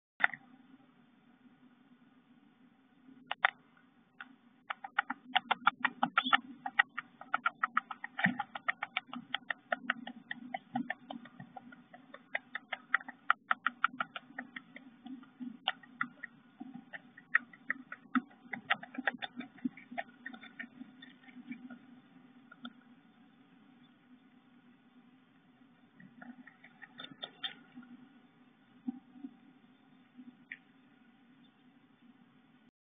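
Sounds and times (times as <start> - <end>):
bird bill clicking on eggshell: 4.2 - 21.8, 26.0 - 27.9.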